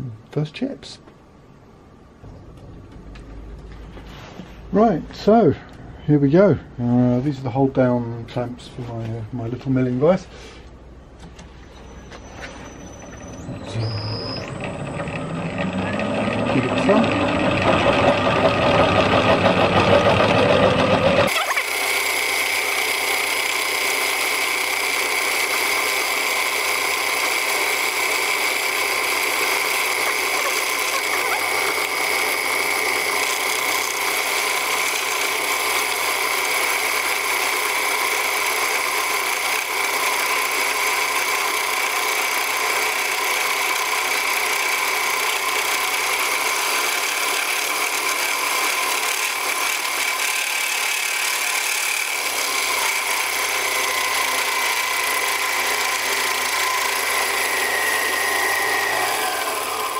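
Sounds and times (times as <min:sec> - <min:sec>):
milling machine cutting aluminium: 0:12.6 - 0:59.9.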